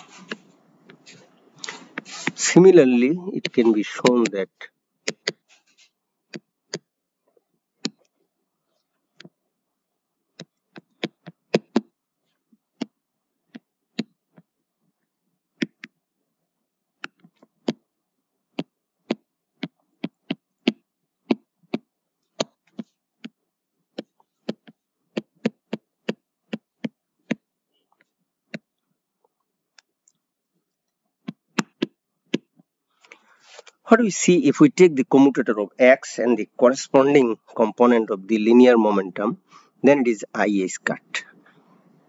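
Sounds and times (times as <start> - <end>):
stylus tapping on tablet screen: 5.0 - 5.5, 7.8 - 8.0, 10.4 - 11.9, 15.6 - 16.0, 18.5 - 27.4, 31.2 - 32.7.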